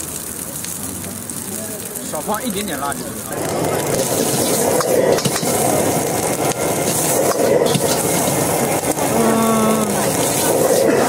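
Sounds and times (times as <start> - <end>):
food sizzling: 0.0 - 11.0
gas flame roar: 0.0 - 11.0
ladle scraping wok: 3.9 - 11.0.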